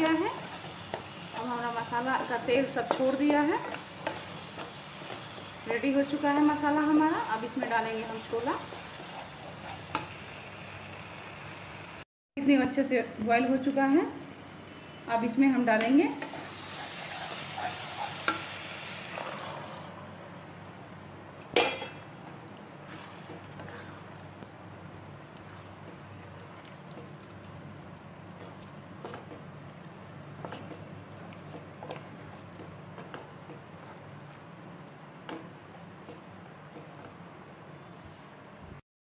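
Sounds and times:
food sizzling in a pan: 0.0s - 12.0s, 16.1s - 20.4s.

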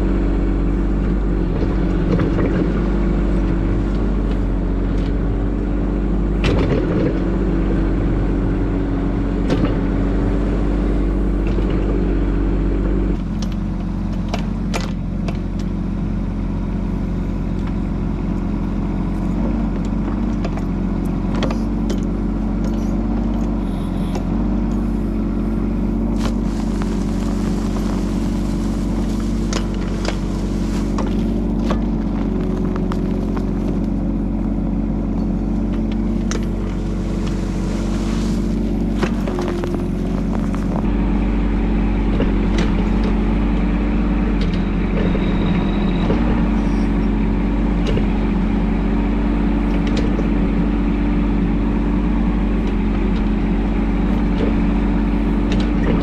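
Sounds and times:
excavator diesel engine running: 0.0s - 56.0s
bucket scraping soil and rocks: 24.8s - 34.3s, 35.5s - 41.2s.

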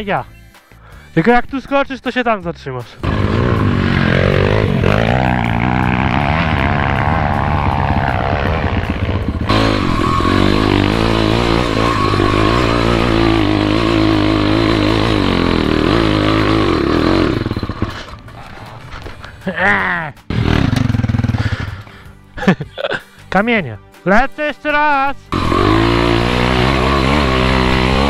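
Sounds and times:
dirt bike engine revving: 3.0s - 18.2s, 20.3s - 21.8s, 25.3s - 28.0s.

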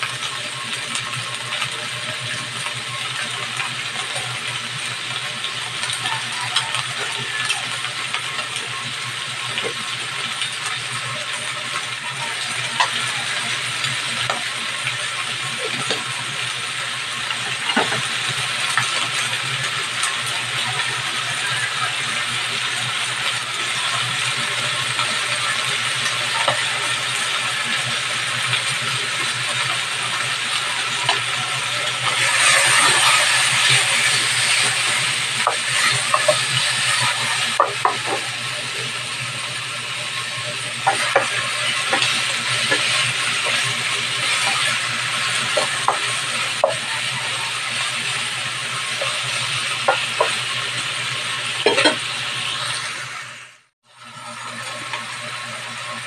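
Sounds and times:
chicken sizzling in frying pan: 0.0s - 56.0s
spatula scraping frying pan: 28.8s - 38.7s, 40.1s - 50.8s, 51.4s - 52.8s.

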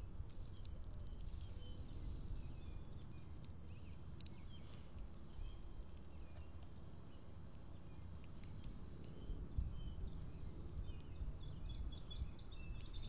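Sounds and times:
small birds chirping: 0.0s - 13.0s
light clicks: 3.1s - 5.2s.

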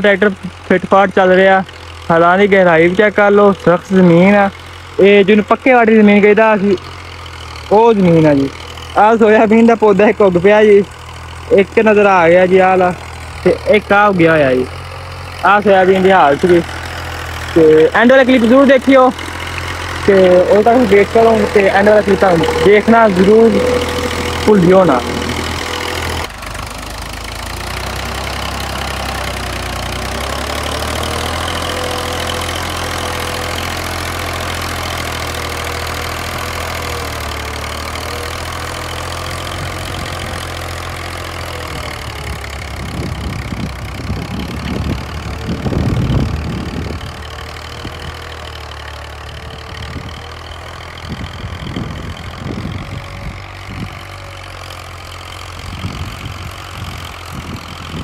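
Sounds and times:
tractor diesel engine under load: 0.0s - 58.0s
low wind buffeting on microphone: 42.8s - 47.1s, 51.1s - 54.0s, 55.6s - 58.0s.

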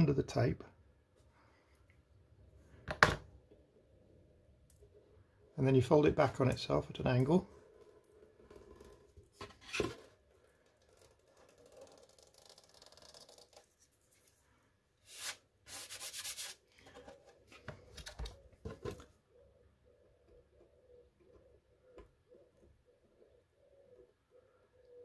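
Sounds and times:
masking tape peeling: 10.9s - 14.2s, 15.0s - 16.6s.

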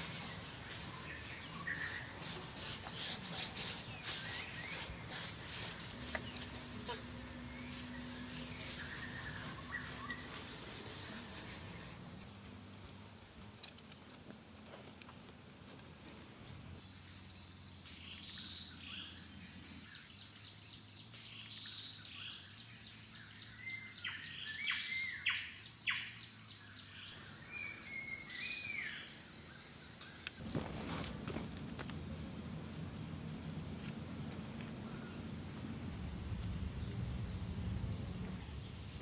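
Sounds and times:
birds chirping and whistling: 0.0s - 12.3s
high-pitched insect drone: 0.0s - 12.3s.

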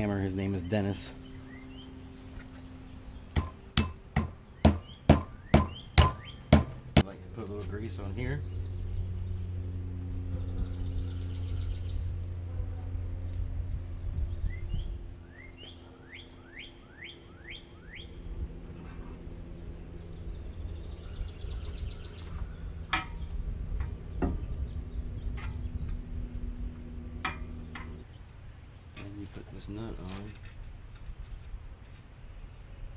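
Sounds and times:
steady low hum: 0.0s - 32.9s
bird chirping: 0.3s - 13.0s, 13.9s - 29.9s.

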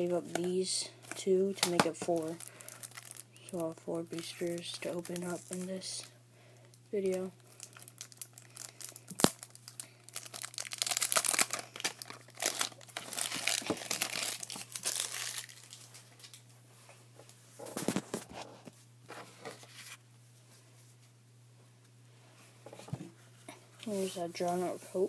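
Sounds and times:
plastic wrapping tearing and crinkling: 1.6s - 3.6s, 7.4s - 16.4s.

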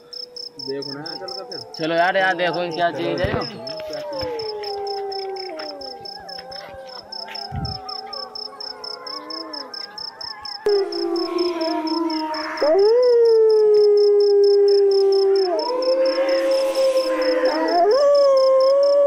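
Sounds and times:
dogs howling: 0.0s - 19.0s
high pulsing chirp: 10.0s - 19.0s.

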